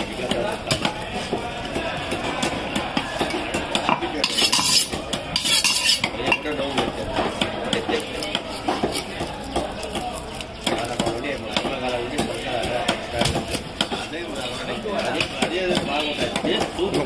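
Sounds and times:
knife cutting fish on wood: 3.8 - 6.2
blade rasping scrapes: 4.2 - 6.1.

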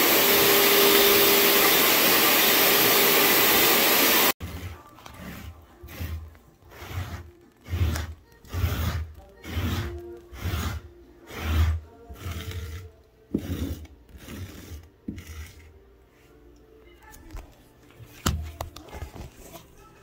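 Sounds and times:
hand tool scraping carpet: 0.1 - 15.8.

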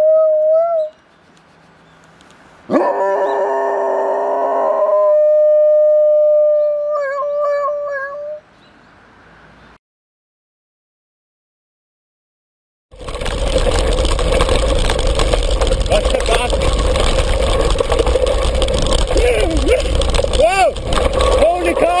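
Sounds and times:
dog howling: 0.0 - 1.0, 2.7 - 8.4.

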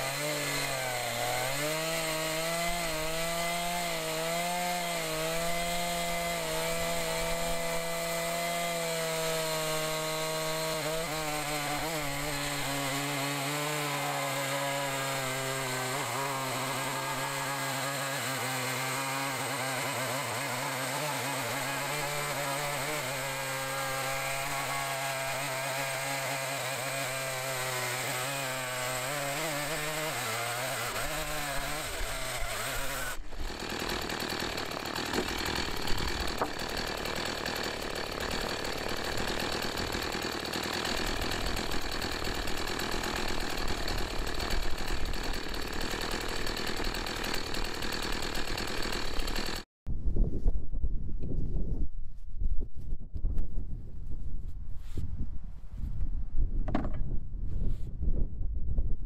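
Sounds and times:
chainsaw idling: 0.0 - 49.7.

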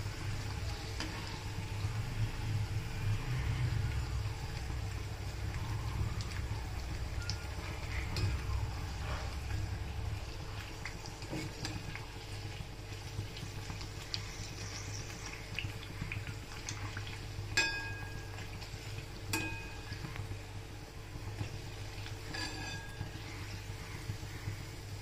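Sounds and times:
dough sizzling in hot oil: 0.0 - 25.0
metal utensil clinking on pan: 17.6 - 18.2, 19.3 - 20.0, 22.3 - 23.1.

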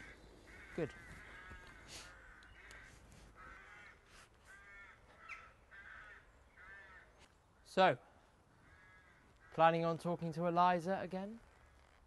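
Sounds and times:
crows cawing faintly: 0.0 - 10.5, 11.2 - 12.0.

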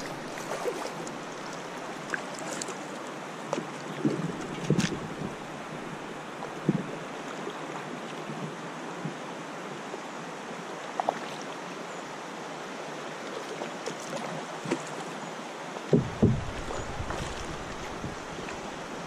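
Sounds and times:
paddle splashing in water: 0.0 - 7.4, 15.9 - 19.0
light knocks: 15.9 - 18.2.

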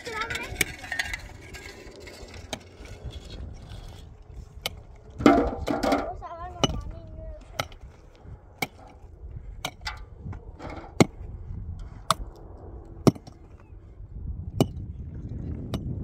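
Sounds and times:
metal tool striking stony earth: 0.1 - 6.9, 7.5 - 11.3, 12.0 - 12.4, 13.0 - 13.6.

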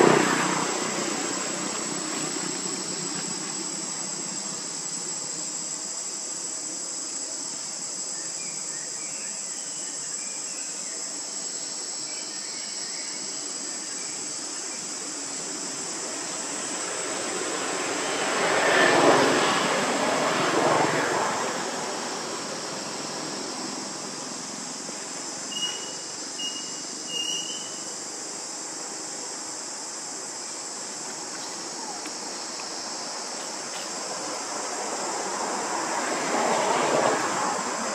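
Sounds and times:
high-pitched insect drone: 0.0 - 37.9
faint chirps: 25.5 - 27.9.

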